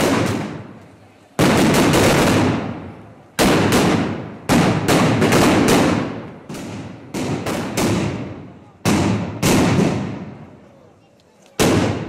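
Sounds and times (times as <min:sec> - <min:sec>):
firecrackers banging: 0:00.0 - 0:10.7, 0:11.4 - 0:12.0.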